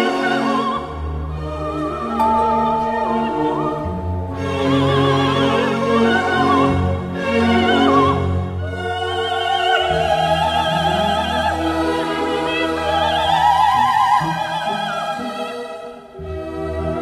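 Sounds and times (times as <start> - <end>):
operatic singing with orchestra: 0.0 - 17.0.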